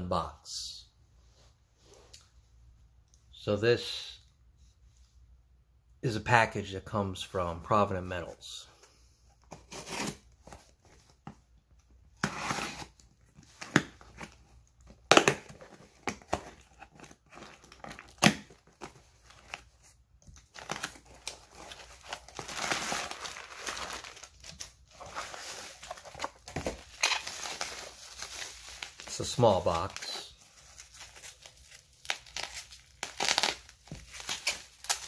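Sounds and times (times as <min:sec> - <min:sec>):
cardboard box tearing and cracking: 0:09.6 - 0:10.3, 0:20.5 - 0:29.2, 0:30.8 - 0:35.0
packing paper rustling: 0:15.5 - 0:35.0.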